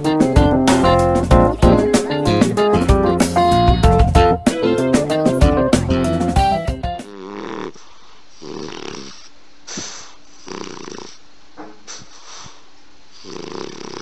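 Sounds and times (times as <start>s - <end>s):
dog snoring: 7.1s - 11.2s, 11.8s - 14.0s
dog breathing: 7.3s - 11.2s, 11.8s - 14.0s.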